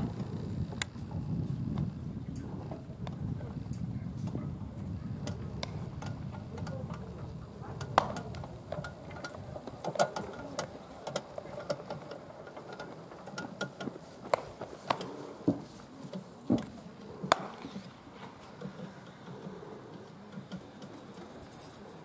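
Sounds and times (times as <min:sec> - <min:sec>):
baseballs smacking into gloves: 0:07.9 - 0:08.5, 0:14.2 - 0:15.1, 0:17.3 - 0:17.8.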